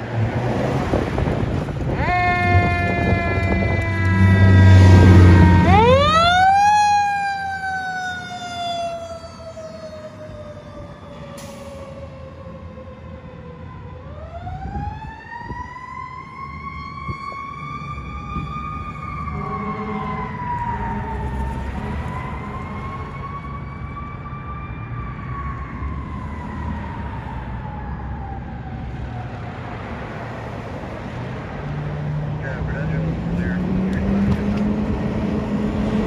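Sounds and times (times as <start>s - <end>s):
engine and traffic rumble: 0.0s - 36.0s
fire truck siren wailing: 0.9s - 36.0s
low horn tones: 2.0s - 6.5s, 19.2s - 23.2s.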